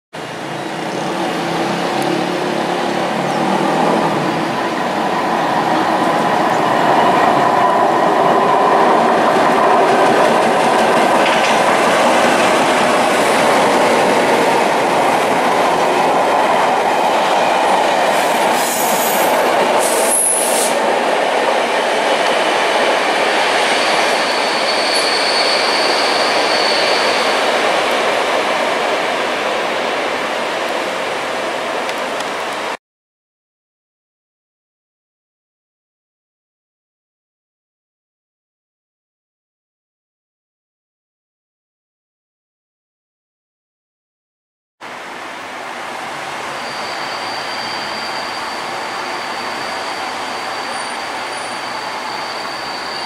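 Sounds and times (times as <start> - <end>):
train wheels on rails: 0.2 - 32.8
brief high hiss: 18.2 - 20.8.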